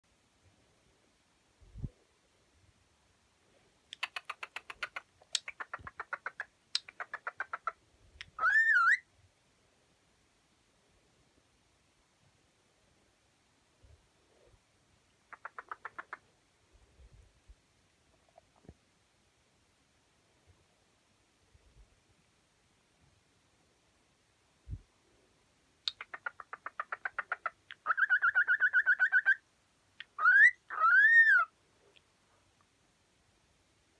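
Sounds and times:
bird rapid clicks: 3.9 - 7.8, 15.3 - 16.2
cockatiel ticking and warbling: 3.9 - 9.0, 15.2 - 16.2, 25.8 - 29.4, 30.0 - 31.5
bird whistle: 8.4 - 9.0, 30.2 - 31.5.

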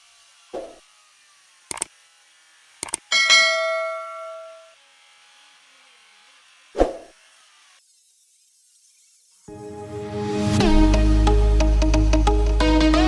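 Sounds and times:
quick double click: 2.8 - 3.0
notification bell chime: 3.2 - 4.7.

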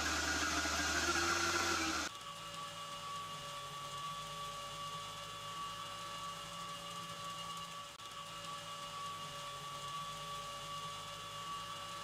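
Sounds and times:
industrial machinery hum: 0.0 - 2.1
loud rushing machine noise: 0.0 - 2.1.

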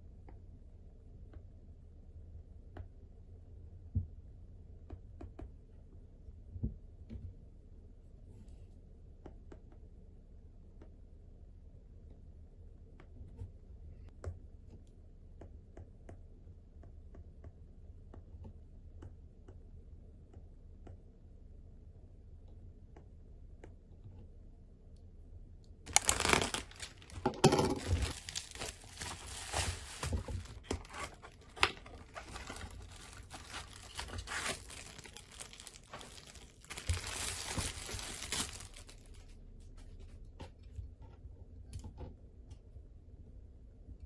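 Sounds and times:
packaging tearing and crinkling: 25.9 - 39.2.

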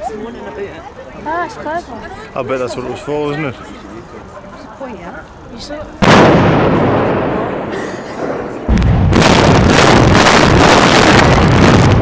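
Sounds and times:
crackling blasts and rumble: 6.0 - 12.0
loud explosive blast: 6.0 - 12.0.

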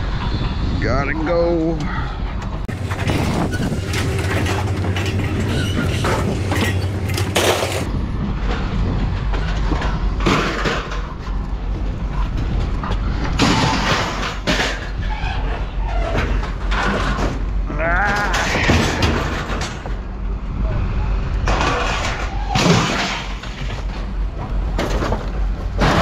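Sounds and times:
steady low rumble: 0.0 - 26.0
scrap metal clattering onto pile: 2.7 - 7.9, 9.4 - 11.3, 13.4 - 17.5, 18.1 - 20.0, 21.5 - 24.1, 24.7 - 26.0.

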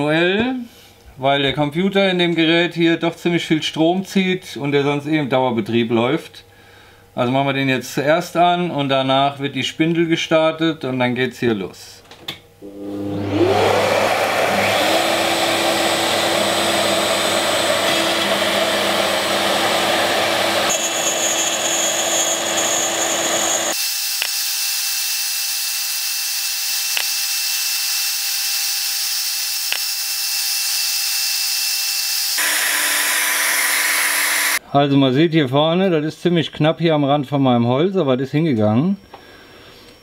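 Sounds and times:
router spindle milling wood: 12.6 - 34.6
vacuum whining: 12.6 - 34.6.

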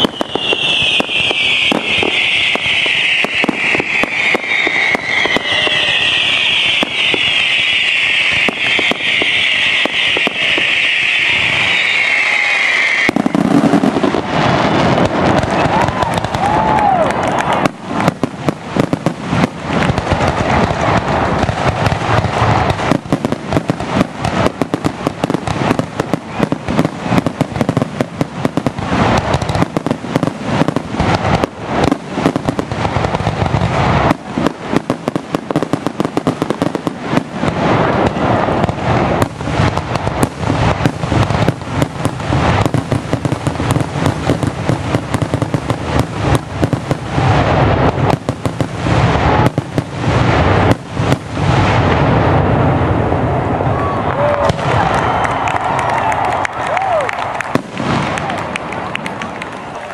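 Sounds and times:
fireworks booming and crackling: 0.0 - 59.9.

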